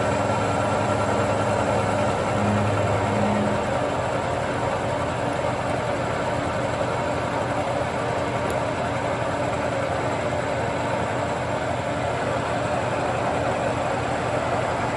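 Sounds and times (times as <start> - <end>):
machine drive running: 0.0 - 9.7.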